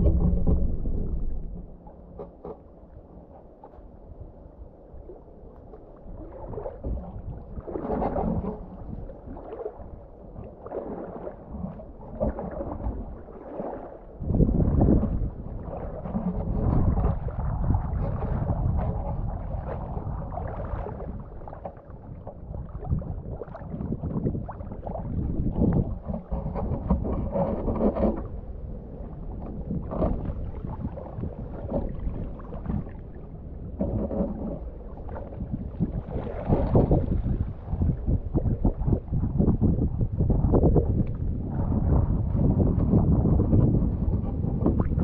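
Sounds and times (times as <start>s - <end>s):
low rumble: 0.0s - 3.6s
water sloshing around waders: 0.0s - 45.0s.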